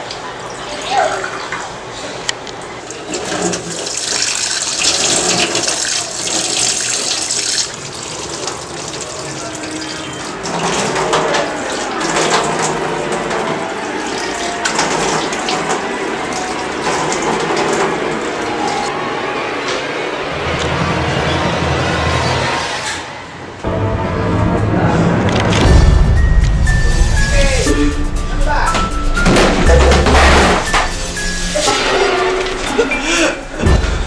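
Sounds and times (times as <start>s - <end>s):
faucet water running into sink: 2.8s - 18.4s.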